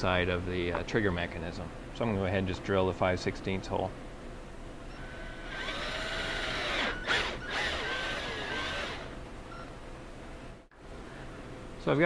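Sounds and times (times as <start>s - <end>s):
power drill cutting plastic: 5.0s - 9.2s.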